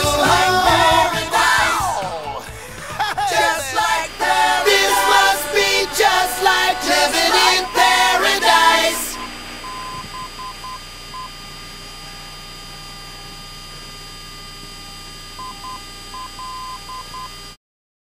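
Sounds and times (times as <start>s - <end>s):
steady electronic whine: 0.0s - 17.6s
short beeps: 4.7s - 5.4s, 7.3s - 13.1s, 15.4s - 17.5s.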